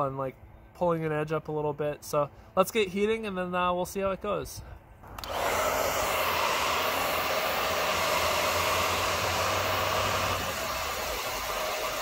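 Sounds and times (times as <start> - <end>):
hair dryer running: 5.0 - 12.0.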